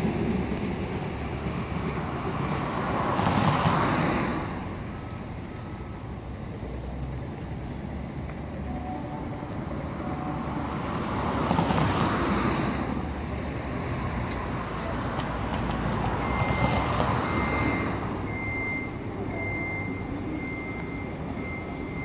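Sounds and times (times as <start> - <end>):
electric train rumbling: 0.0 - 22.0
high steady tone: 8.6 - 11.5.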